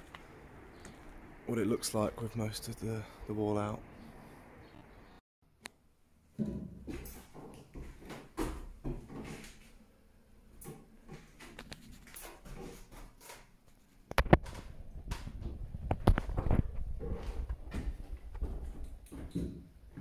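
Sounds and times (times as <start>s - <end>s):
footsteps on floorboards: 6.5s - 9.7s, 15.2s - 20.0s.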